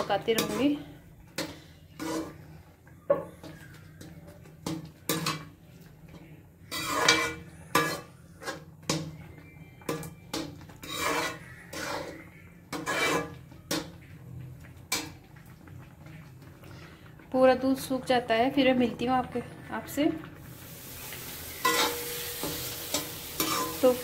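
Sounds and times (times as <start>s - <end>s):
spatula scraping metal pan: 0.0s - 2.6s, 6.6s - 9.2s, 9.9s - 14.0s, 21.1s - 24.0s.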